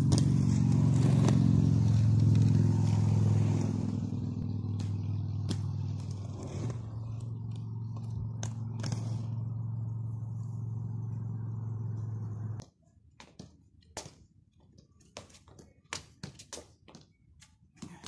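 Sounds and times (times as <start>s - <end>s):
low hum: 0.0s - 12.6s.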